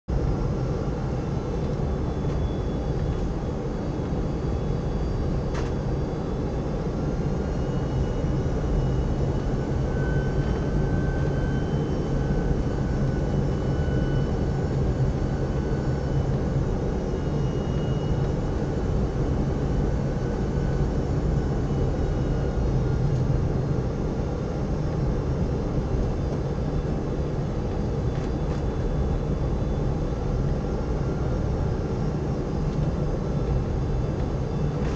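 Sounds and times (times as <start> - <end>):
airplane cabin drone: 0.1 - 34.9
faint whining tones: 0.2 - 34.9.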